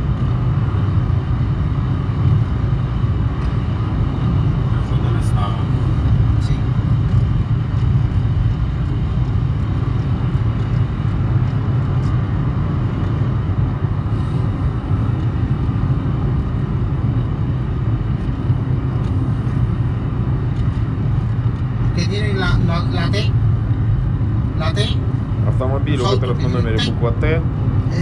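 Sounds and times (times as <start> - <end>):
car cabin road and engine drone: 0.0 - 28.0.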